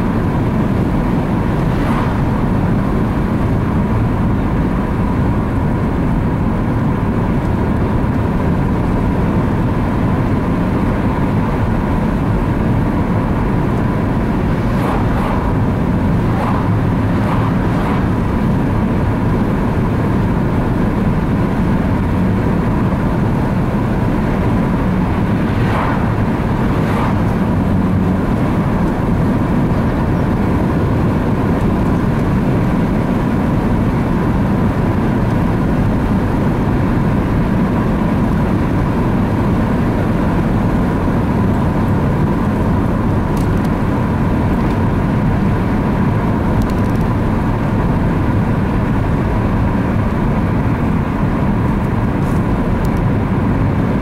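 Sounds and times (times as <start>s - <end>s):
car road and engine rumble: 0.0s - 54.0s.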